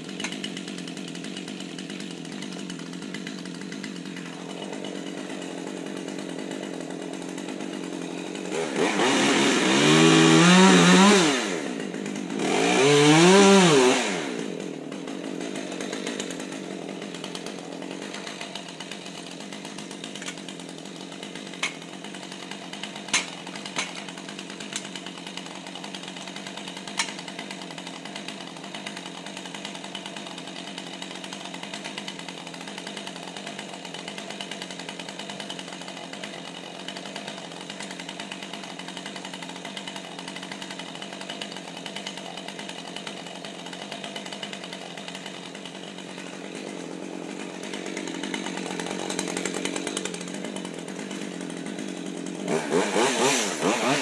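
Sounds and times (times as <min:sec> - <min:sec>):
chainsaw idling and revving: 0:00.0 - 0:54.0.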